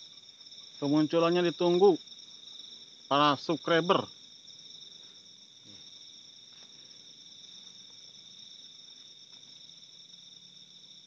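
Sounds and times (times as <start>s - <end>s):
night insects trilling: 0.0s - 11.0s.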